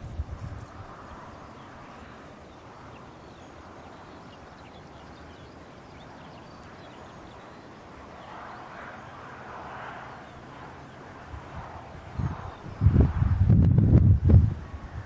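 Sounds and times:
wind on microphone: 0.0s - 2.2s, 10.1s - 15.0s
birds chirping and trilling: 1.3s - 13.2s.

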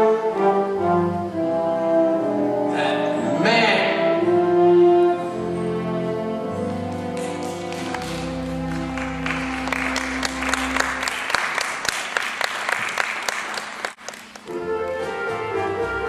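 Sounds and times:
orchestra playing sustained chords: 0.0s - 11.2s, 14.5s - 16.0s
audience applauding: 6.6s - 14.6s.

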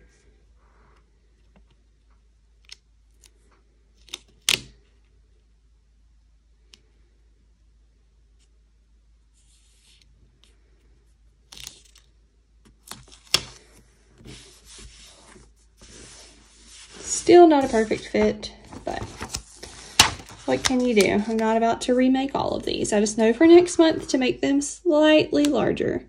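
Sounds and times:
sticker rustling: 11.4s - 22.9s
sticker paper crackling: 12.7s - 22.9s.

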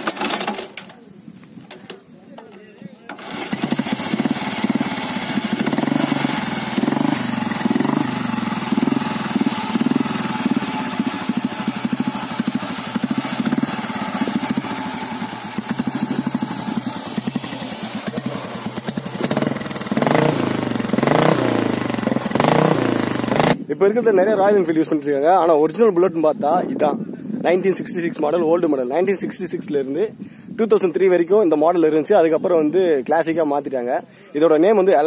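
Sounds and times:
motorcycle engine idling and revving: 3.1s - 23.6s.

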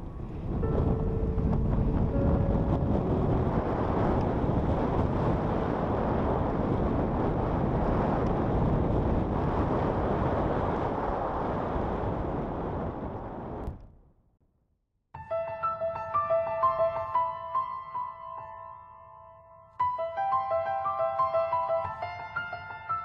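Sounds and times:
wind rushing on microphone: 0.0s - 14.0s.

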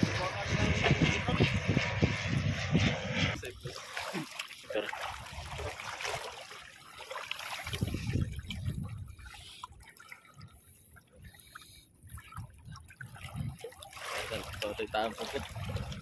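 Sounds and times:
person wading through water: 3.4s - 16.0s.

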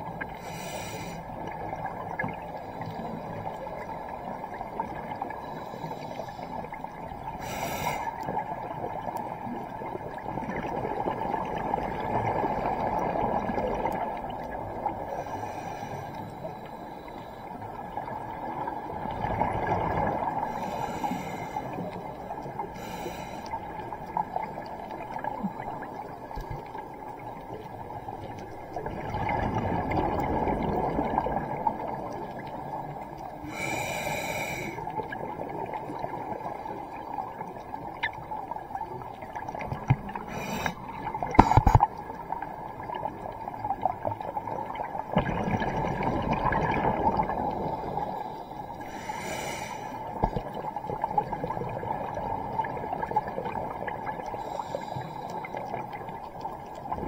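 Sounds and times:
regulator inhalation hiss: 0.4s - 1.3s, 7.4s - 8.2s, 20.6s - 21.8s, 22.8s - 23.6s, 33.5s - 34.8s, 40.3s - 40.8s, 48.2s - 50.0s
exhaled bubbles rushing: 28.6s - 32.6s, 39.4s - 48.1s.

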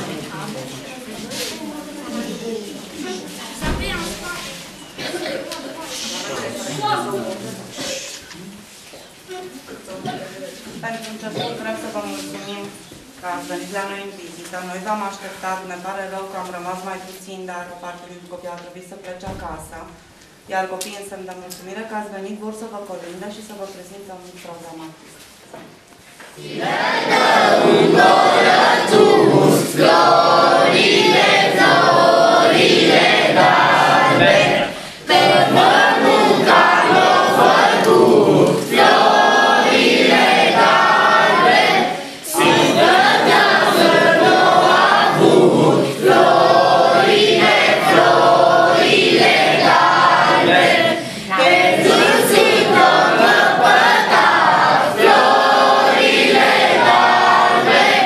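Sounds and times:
children singing a carol: 26.4s - 58.0s.

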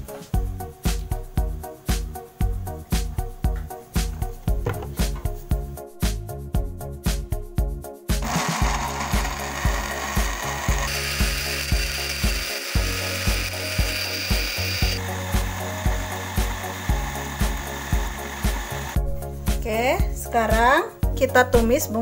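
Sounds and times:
background music with steady beat: 0.0s - 22.0s
electric blender grinding: 8.2s - 19.0s.

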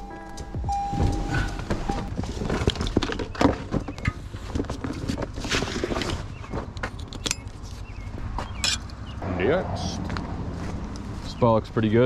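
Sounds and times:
footsteps: 0.0s - 5.4s, 9.9s - 11.6s
knocks and clicks of gear: 6.0s - 9.2s.

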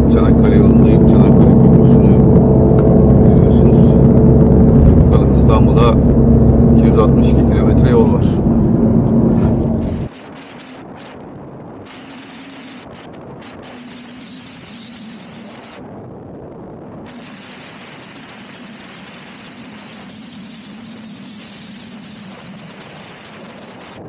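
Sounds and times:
low engine hum: 0.0s - 10.1s
road and wind noise: 0.0s - 24.0s.

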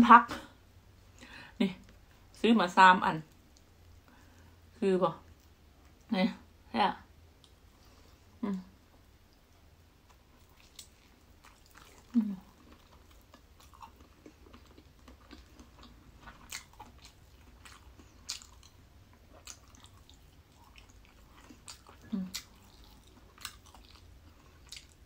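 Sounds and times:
chewing and biting: 10.0s - 25.0s.

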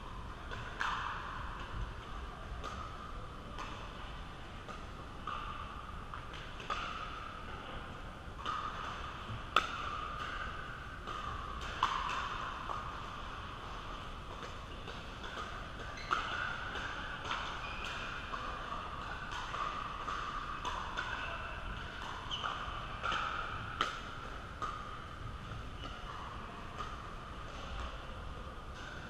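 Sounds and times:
background din of a hall: 0.0s - 29.0s
paddles striking pickleball: 8.4s - 12.9s.

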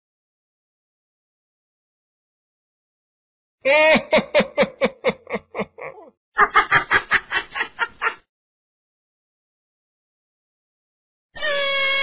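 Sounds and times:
mocking laughter: 3.7s - 8.3s.

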